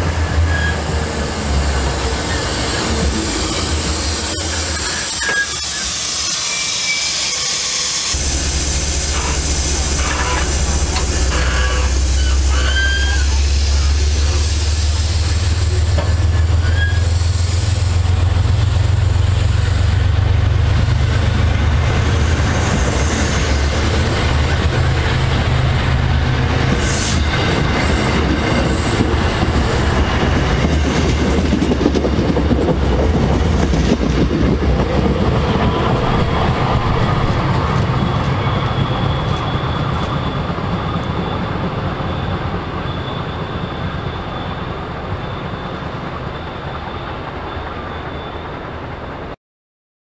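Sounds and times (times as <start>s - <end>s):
train wheels clattering on rails: 15.4s - 16.6s, 20.5s - 44.7s
high whine: 35.2s - 40.5s.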